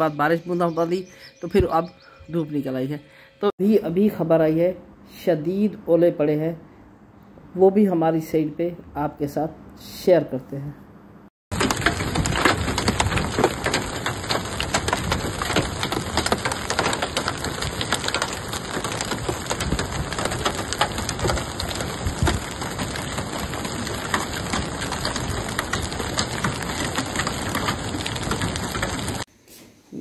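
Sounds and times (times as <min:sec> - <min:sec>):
hail striking ground: 0:11.5 - 0:29.3.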